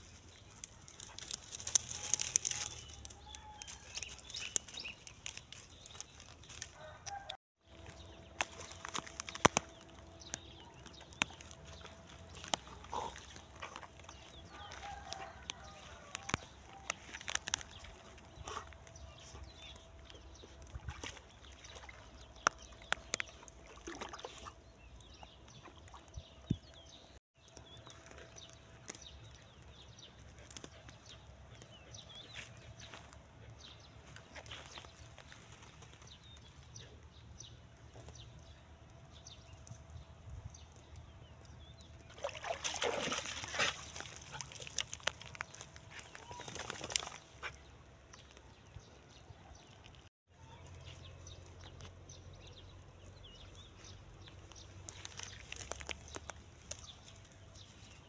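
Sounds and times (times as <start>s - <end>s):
water sloshing and lapping: 7.7s - 15.5s, 16.2s - 26.5s, 42.0s - 47.7s.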